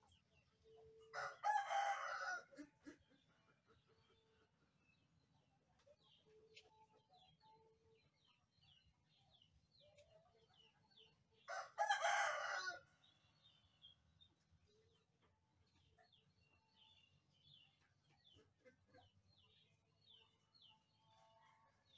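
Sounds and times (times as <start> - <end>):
rooster crowing: 1.1 - 2.5, 11.5 - 12.8
small birds chirping: 2.8 - 12.2, 13.0 - 21.9.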